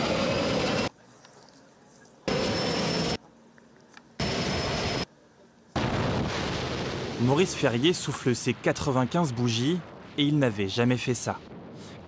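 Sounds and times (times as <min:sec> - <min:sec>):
turboprop engine and propeller running: 0:00.0 - 0:00.9, 0:02.3 - 0:03.2, 0:04.2 - 0:05.1
quiet outdoor ambience: 0:00.0 - 0:12.0.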